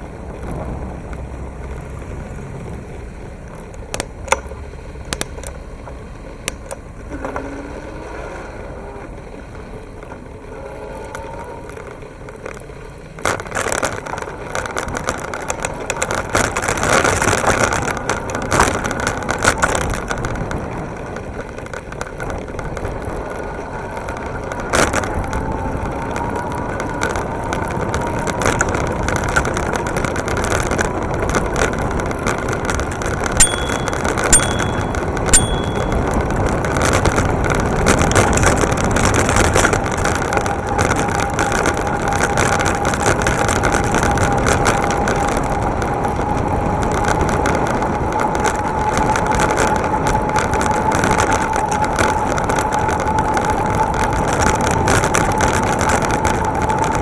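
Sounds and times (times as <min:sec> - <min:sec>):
tyres rumbling on pavement: 0:00.0 - 0:57.0
camera rattling: 0:13.2 - 0:45.4
bicycle bell ringing: 0:33.4 - 0:36.3.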